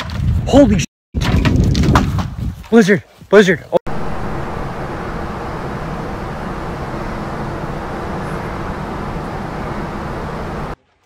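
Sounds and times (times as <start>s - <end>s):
distant traffic hiss and rumble: 3.9s - 10.8s.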